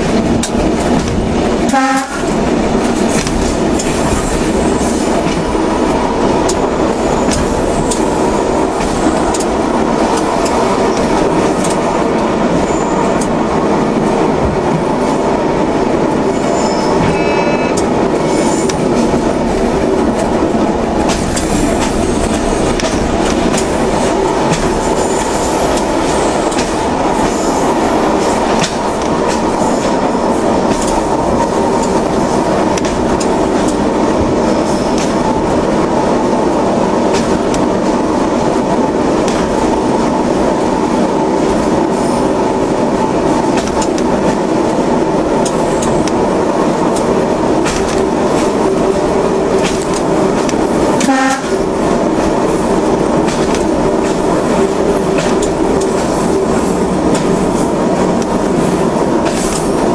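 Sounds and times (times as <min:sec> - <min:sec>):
wheels clicking over rails: 0:00.0 - 0:13.7, 0:17.0 - 0:59.9
train running on track: 0:00.0 - 0:59.9
high wheel squeal: 0:12.6 - 0:13.1, 0:16.3 - 0:18.7.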